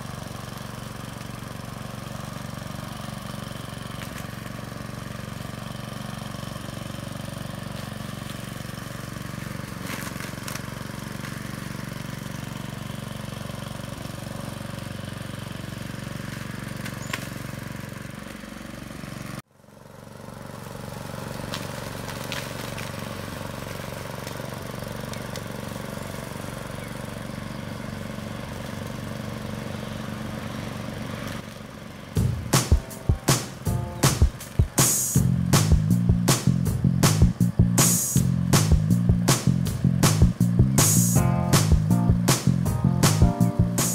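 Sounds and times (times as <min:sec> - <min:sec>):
lawnmower engine running: 0:00.0 - 0:43.9.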